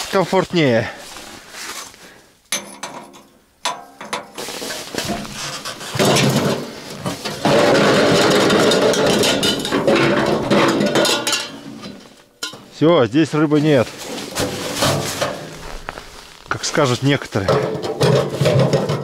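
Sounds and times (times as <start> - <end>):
metal clanks: 2.5 - 12.8, 14.0 - 19.0
metal scraping and rattling: 2.5 - 19.0.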